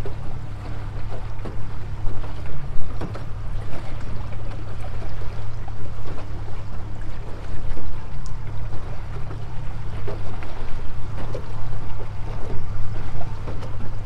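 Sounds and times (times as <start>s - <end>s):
boat motor droning: 0.0s - 14.0s
hull knocking and splashing: 0.0s - 14.0s.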